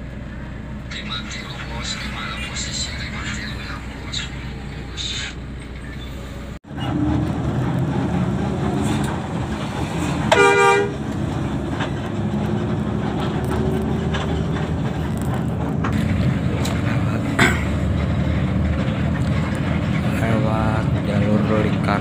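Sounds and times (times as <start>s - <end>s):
bus engine and road rumble: 0.0s - 22.0s
short horn blast: 10.3s - 11.0s.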